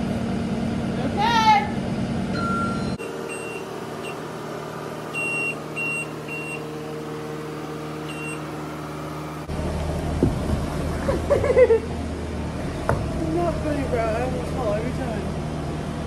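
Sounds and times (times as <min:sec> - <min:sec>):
loader engine running: 0:00.0 - 0:16.0
short high alarm beeps: 0:02.4 - 0:04.3, 0:05.1 - 0:06.7, 0:08.0 - 0:08.5.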